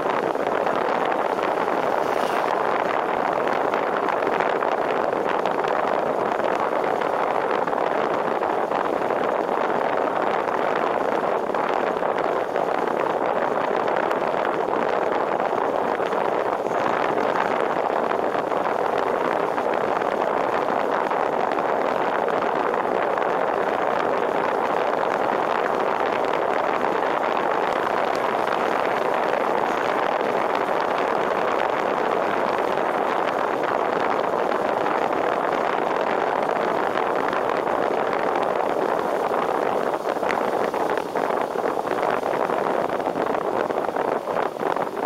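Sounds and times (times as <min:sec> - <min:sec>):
wind rushing: 0:00.0 - 0:45.0
tyres on wet road: 0:00.1 - 0:03.8.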